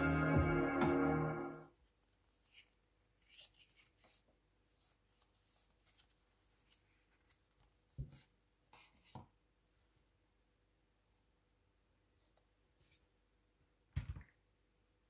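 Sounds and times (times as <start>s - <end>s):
paper card rustling and scraping: 1.8s - 9.2s.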